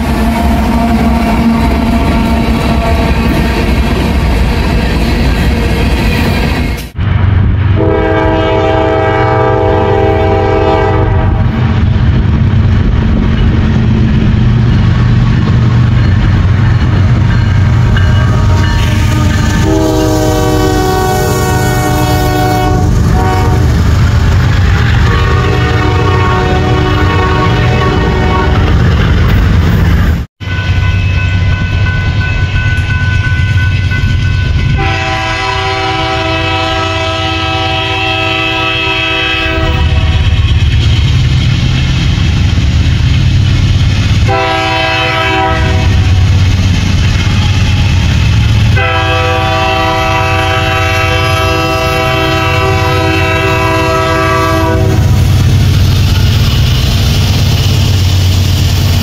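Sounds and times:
locomotive air horn blasts: 0.0s - 3.4s, 7.8s - 11.6s, 18.0s - 23.8s, 24.7s - 28.8s, 30.4s - 40.3s, 44.2s - 46.2s, 47.2s - 55.2s
passing train rumble: 0.0s - 59.0s.

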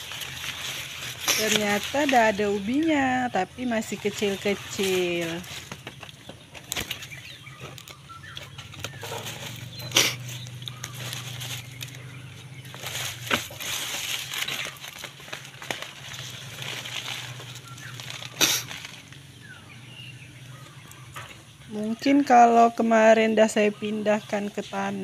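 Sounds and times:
plastic bag and leaves rustling: 0.0s - 25.0s
knife scraping through soil: 0.1s - 2.2s.

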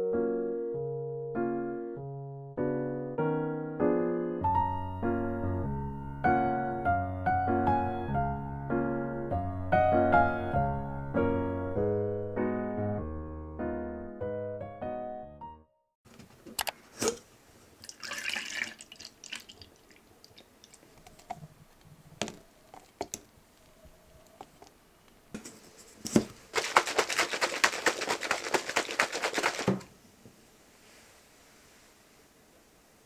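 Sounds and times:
drink sloshing in shaker cup: 17.8s - 21.4s, 26.1s - 29.9s.

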